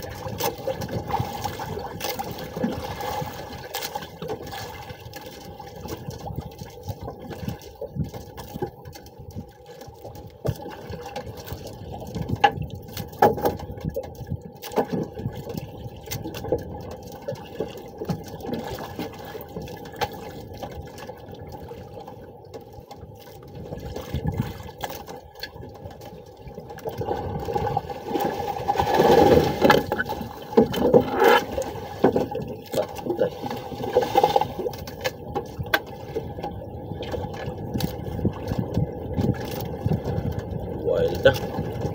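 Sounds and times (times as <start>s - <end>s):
water slapping against boat hull: 0.0s - 41.9s.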